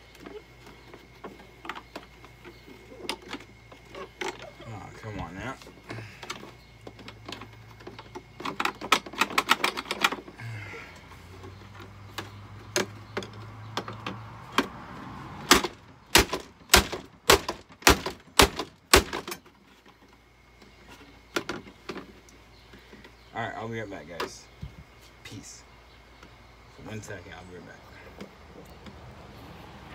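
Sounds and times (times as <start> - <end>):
hard plastic clattering and knocking: 0.1 - 10.4, 11.3 - 14.8, 15.5 - 23.2.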